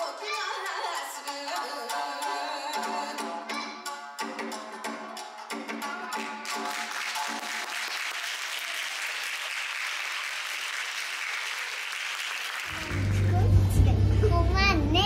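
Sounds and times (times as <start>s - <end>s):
audience applauding: 6.2s - 13.4s.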